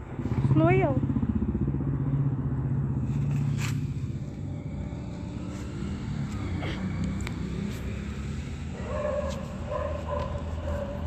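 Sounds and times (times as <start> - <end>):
vehicle engine humming: 0.0 - 11.0.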